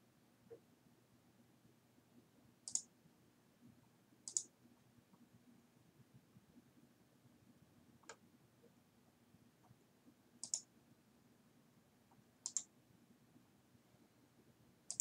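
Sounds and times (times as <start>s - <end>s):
faint room hum: 0.0s - 15.0s
computer mouse clicks: 2.7s - 2.9s, 4.3s - 4.5s, 10.4s - 10.7s, 12.4s - 12.7s.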